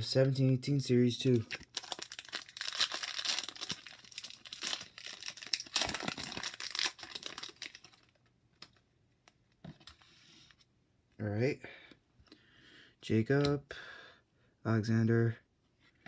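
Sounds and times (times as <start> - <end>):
foil wrapper tearing and crinkling: 1.5 - 8.2.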